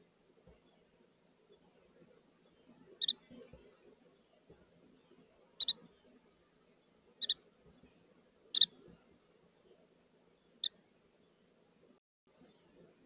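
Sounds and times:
wren chip calls: 3.0 - 3.3, 5.6 - 5.8, 7.2 - 7.4, 8.5 - 8.8.

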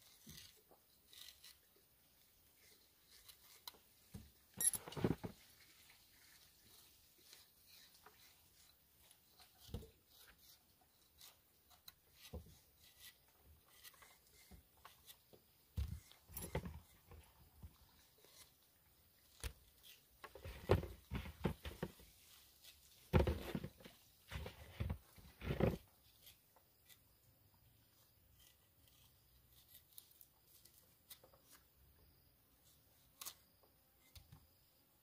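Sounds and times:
thumps on wooden board: 23.1 - 23.8.

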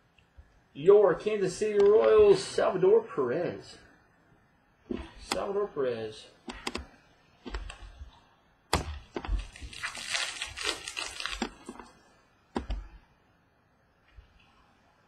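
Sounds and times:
crinkly rustling of cards: 9.2 - 12.0.

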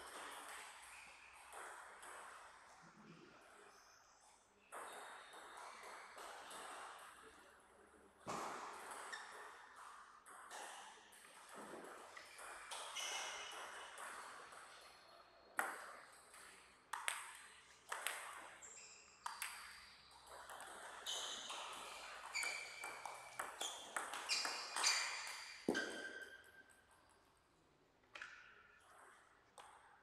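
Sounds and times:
table tennis ball pinging: 19.2 - 27.1.

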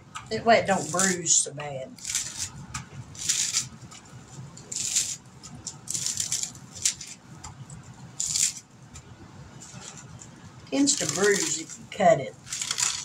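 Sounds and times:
lettuce being torn crunching: 2.0 - 3.8, 4.5 - 7.2, 8.2 - 8.6, 10.9 - 11.8, 12.4 - 13.0.

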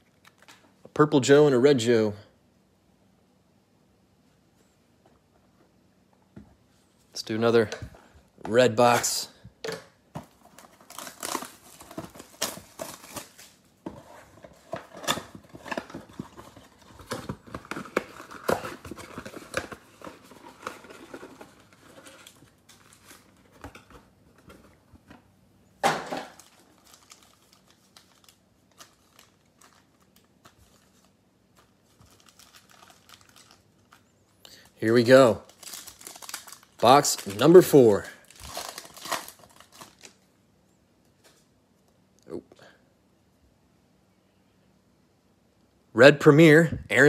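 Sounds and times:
plastic wrap crinkling and tearing: 10.3 - 13.7, 14.5 - 24.0, 26.2 - 40.3.

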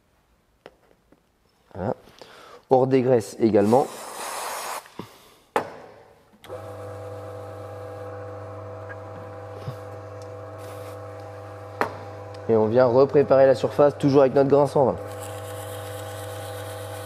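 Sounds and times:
aerosol spray hissing: 3.6 - 4.9
electric motor humming: 6.5 - 17.0.

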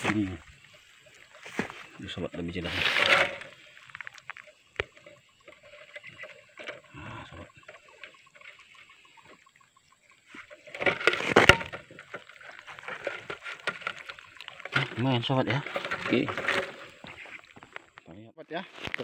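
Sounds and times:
rattling and splashing: 0.0 - 9.4, 10.2 - 18.0.

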